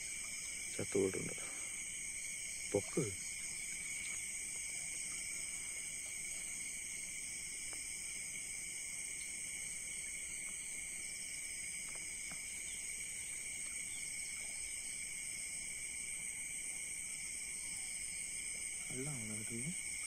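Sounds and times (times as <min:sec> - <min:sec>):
crickets and insects chirping: 0:00.0 - 0:20.0
faint ticks: 0:03.7 - 0:04.3, 0:07.6 - 0:07.9, 0:11.8 - 0:14.5.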